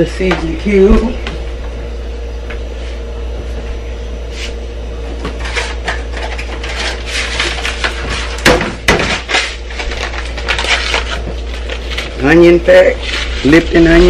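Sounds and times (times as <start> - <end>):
steady low hum: 0.0 - 14.0
packet crinkling and tearing: 9.2 - 14.0.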